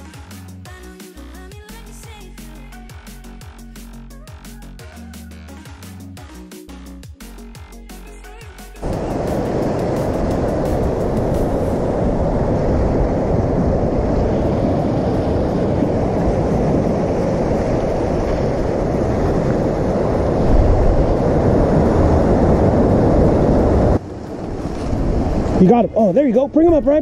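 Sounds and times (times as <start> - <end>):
ocean surf washing around rocks: 8.8 - 27.0
wind rumbling on microphone: 8.8 - 27.0.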